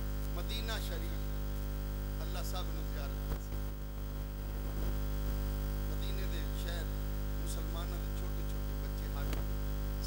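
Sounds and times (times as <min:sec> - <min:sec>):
electrical mains hum: 0:00.0 - 0:10.0
man speaking: 0:00.4 - 0:01.4, 0:02.2 - 0:03.6, 0:05.9 - 0:09.4.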